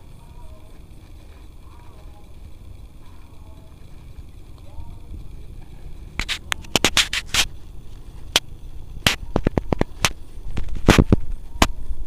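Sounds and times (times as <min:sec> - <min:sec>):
low rumble: 0:00.0 - 0:12.0
sharp clicks and crackling pops: 0:00.0 - 0:12.0.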